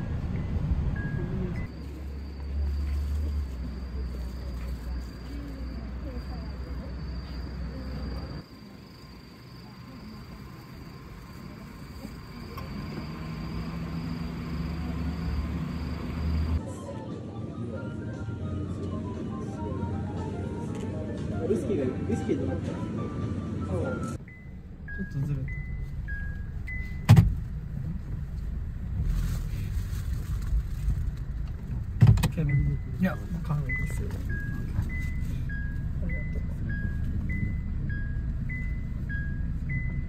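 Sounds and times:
car interior rumble: 0:00.0 - 0:16.6, 0:24.2 - 0:40.0
low engine hum: 0:00.0 - 0:16.8, 0:24.2 - 0:40.0
insects chirring: 0:01.7 - 0:16.6.

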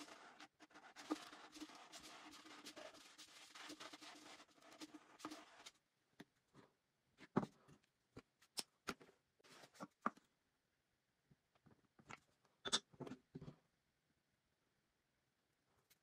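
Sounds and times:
scriber scratching metal can: 0:00.0 - 0:05.7.

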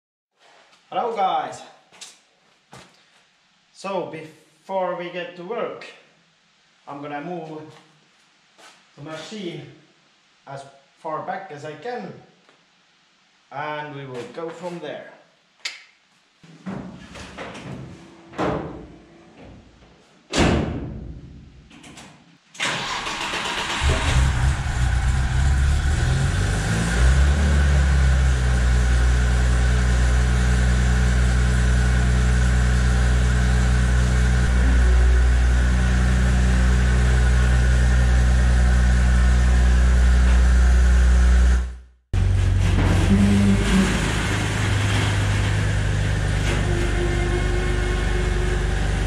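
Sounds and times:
engine starting and idling: 0:22.6 - 0:49.0.

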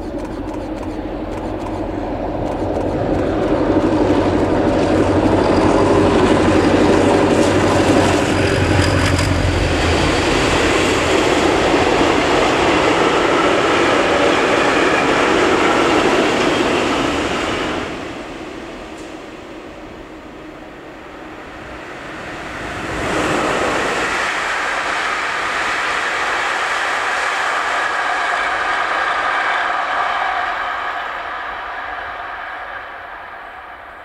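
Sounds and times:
train wagons rolling: 0:00.0 - 0:19.4
locomotive engine drone: 0:00.0 - 0:34.0.

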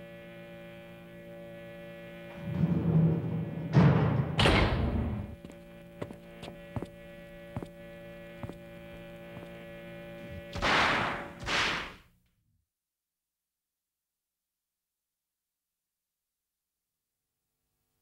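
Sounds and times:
steady electrical hum: 0:00.0 - 0:12.2.

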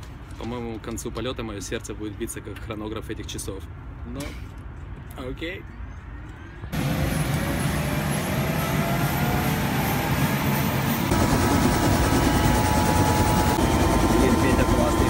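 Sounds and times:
faint high whine: 0:06.6 - 0:15.0
helicopter engine and rotor: 0:06.7 - 0:15.0.

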